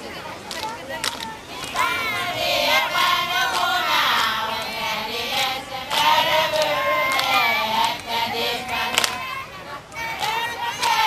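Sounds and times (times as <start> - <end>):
sharp hand claps: 0.5 - 1.9, 3.4 - 9.3, 10.2 - 11.0
women singing a chant: 0.5 - 11.0.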